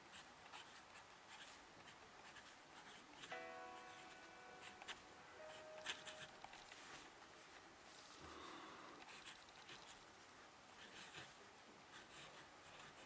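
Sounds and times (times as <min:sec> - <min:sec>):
pen nib scratching paper: 0:00.0 - 0:06.7, 0:09.0 - 0:10.0, 0:10.8 - 0:13.0
steady multi-pitch tone: 0:03.3 - 0:06.6.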